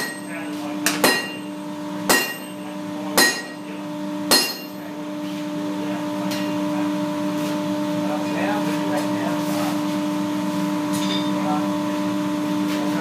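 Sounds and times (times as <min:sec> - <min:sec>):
sledgehammer striking anvil: 0:00.0 - 0:00.3, 0:00.9 - 0:01.5, 0:02.1 - 0:02.6, 0:03.2 - 0:03.6, 0:04.3 - 0:04.8
steady hum: 0:00.0 - 0:13.0.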